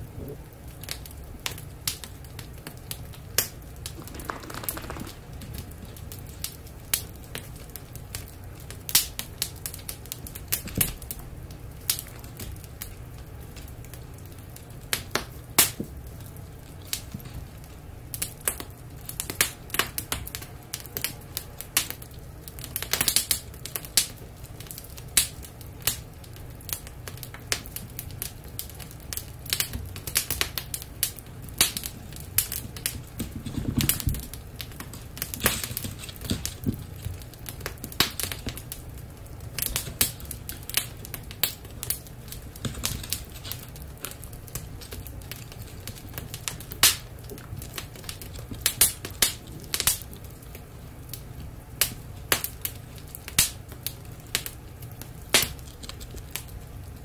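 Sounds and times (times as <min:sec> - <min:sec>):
puppy claws clicking on wood floor: 0:03.4 - 0:06.0, 0:31.6 - 0:38.6, 0:55.3 - 0:56.5.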